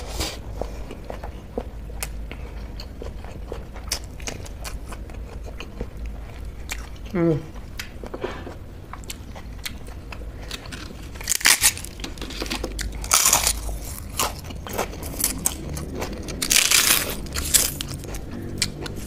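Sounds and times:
soft chewing: 0.1 - 19.0
crunching crisp papad: 10.4 - 18.2.

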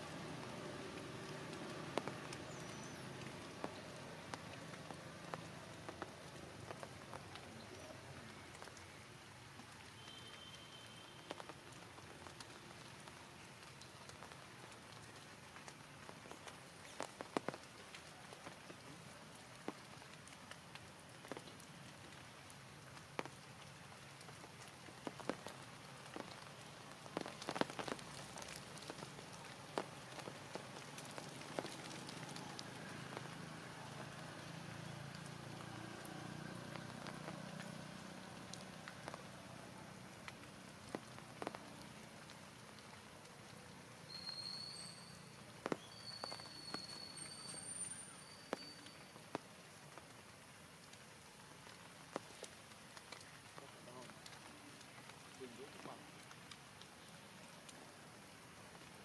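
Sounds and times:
steady rain: 0.0 - 59.0.

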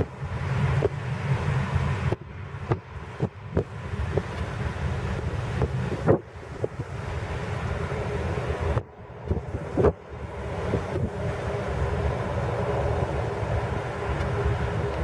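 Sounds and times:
jet engines rumbling: 0.0 - 15.0
wind buffeting the microphone: 0.0 - 15.0.

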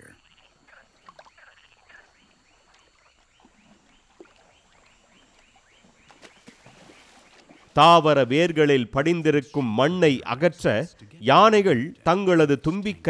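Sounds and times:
small animal chirping: 0.0 - 4.1.

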